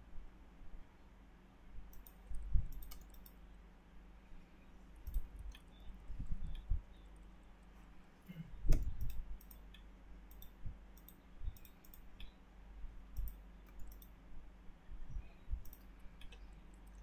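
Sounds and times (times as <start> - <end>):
computer mouse clicks: 1.8 - 3.4, 4.9 - 7.7, 8.7 - 12.4, 13.1 - 14.2, 15.6 - 17.0.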